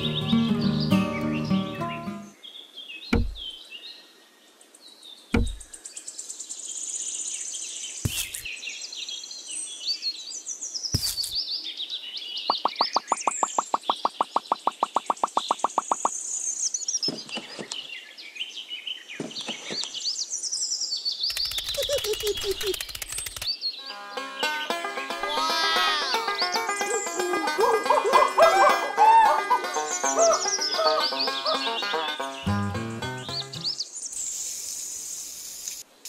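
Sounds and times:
birds chirping and singing: 0.0s - 3.9s, 7.8s - 34.0s
clay pieces knocking on sand: 8.1s - 8.5s, 11.0s - 11.4s
short crackling burst: 21.3s - 23.5s.

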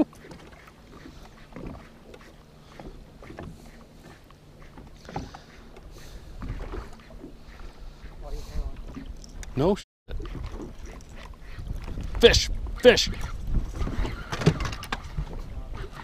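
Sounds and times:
water lapping against boat hull: 0.0s - 16.0s.

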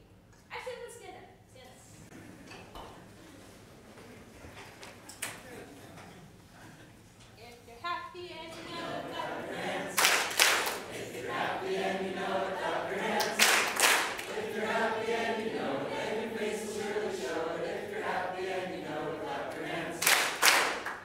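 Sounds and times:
group singing children's song: 8.4s - 21.0s
sharp claps: 10.0s - 11.0s, 13.0s - 14.5s, 20.0s - 21.0s.

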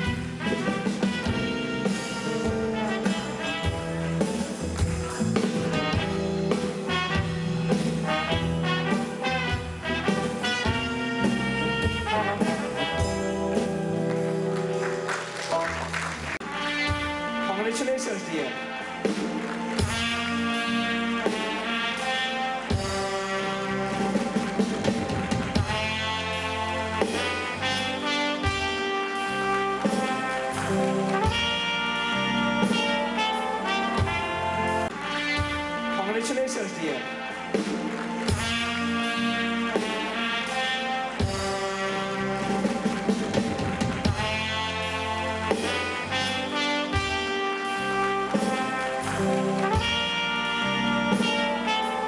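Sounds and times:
instrumental music with held chords: 0.0s - 17.5s.

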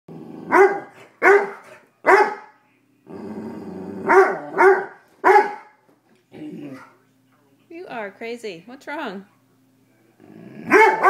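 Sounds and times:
dog growling: 0.1s - 0.9s, 3.0s - 4.7s, 6.3s - 6.9s, 10.2s - 11.0s
dog barking: 0.5s - 2.6s, 4.1s - 5.8s, 10.7s - 11.0s.

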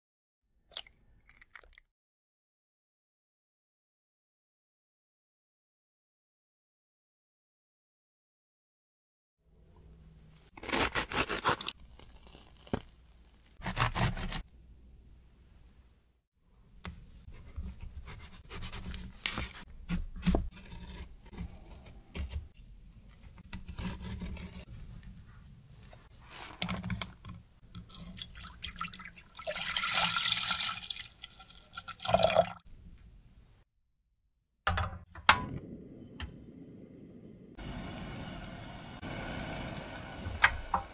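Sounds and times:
gas burner hissing: 35.4s - 40.9s.

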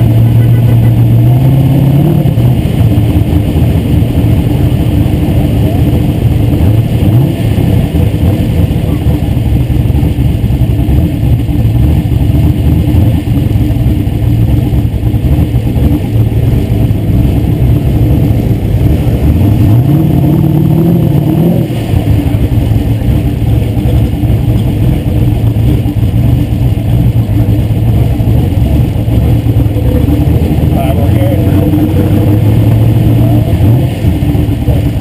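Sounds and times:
car engine running: 0.0s - 35.0s.

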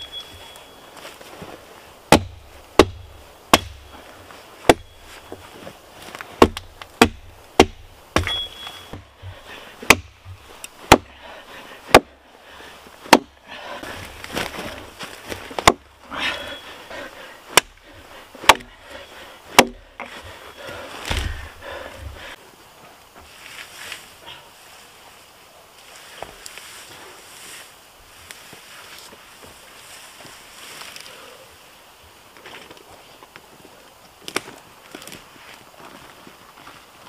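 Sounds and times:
rustling: 0.0s - 12.0s, 12.6s - 31.3s
axe chopping wood: 2.1s - 4.0s, 4.6s - 5.2s, 6.1s - 11.2s, 11.9s - 12.2s, 13.1s - 13.4s, 15.4s - 15.9s, 17.5s - 17.8s, 18.4s - 18.7s, 19.5s - 20.3s, 21.0s - 22.2s.

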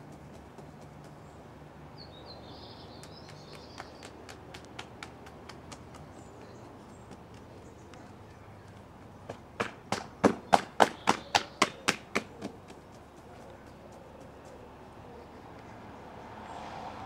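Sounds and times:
hands slapping body: 3.0s - 6.2s, 9.6s - 12.5s.

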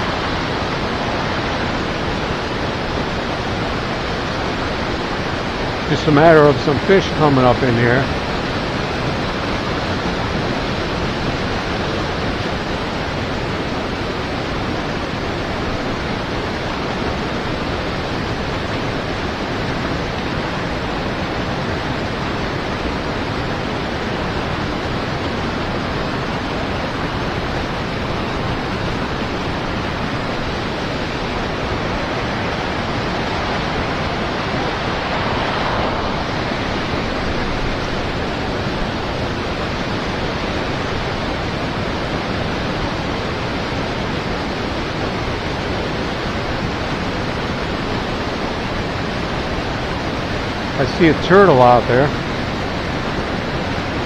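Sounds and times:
white water rushing: 0.0s - 54.0s.

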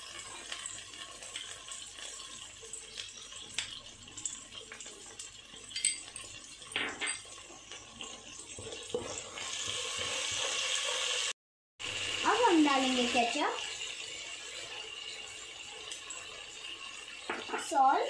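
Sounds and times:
sauce sizzling in hot oil: 0.0s - 18.0s
wooden spatula scraping a pan: 8.5s - 11.3s.

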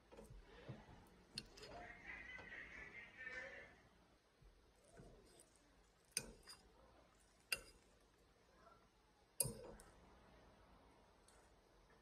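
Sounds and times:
light spoon tap: 4.9s - 6.7s, 7.4s - 8.0s, 9.4s - 9.9s.

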